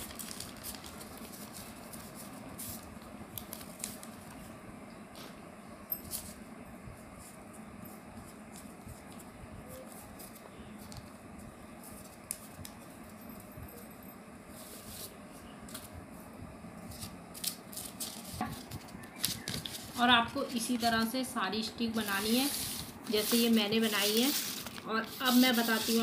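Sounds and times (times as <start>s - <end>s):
newspaper rustling and crinkling: 0.0s - 4.6s, 16.8s - 21.2s, 22.0s - 26.0s
steady low hum: 0.0s - 26.0s.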